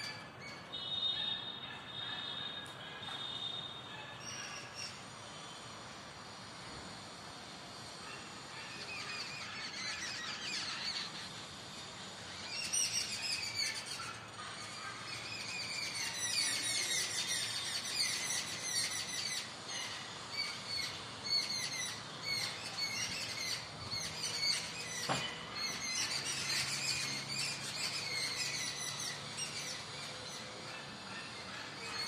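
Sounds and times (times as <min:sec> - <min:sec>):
small birds chirping: 0:08.1 - 0:32.0.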